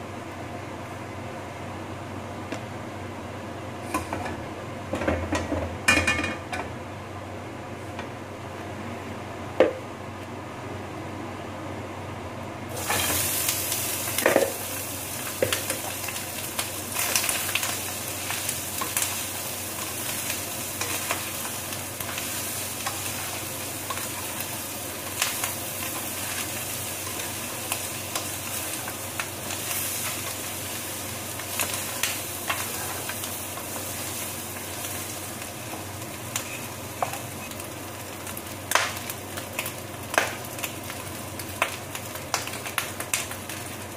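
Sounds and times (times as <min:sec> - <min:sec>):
meat sizzling in frying pan: 0:12.7 - 0:43.9.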